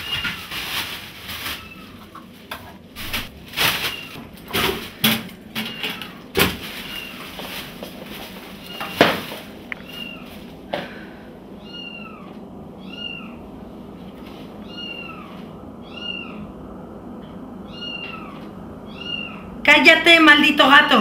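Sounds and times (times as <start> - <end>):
plastic bag and clothes rustling: 0.0 - 10.6
cat meowing: 3.7 - 4.2, 5.6 - 7.3, 8.5 - 10.4, 11.6 - 13.4, 14.6 - 16.5, 17.6 - 19.6.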